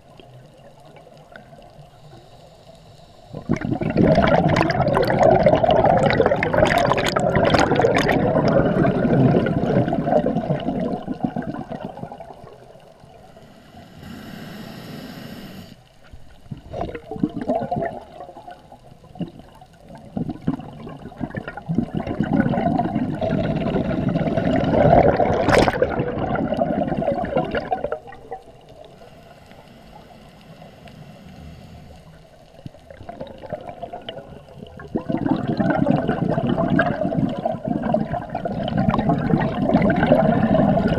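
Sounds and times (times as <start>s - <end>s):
exhaled bubbles gurgling underwater: 0.0s - 14.4s, 15.8s - 40.9s
regulator inhalation hiss: 1.8s - 3.4s, 13.2s - 15.8s, 28.8s - 32.4s.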